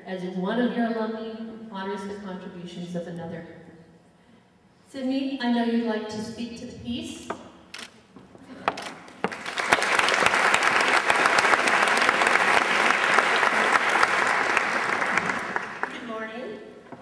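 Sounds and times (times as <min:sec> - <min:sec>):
audience applauding: 0:09.1 - 0:16.2.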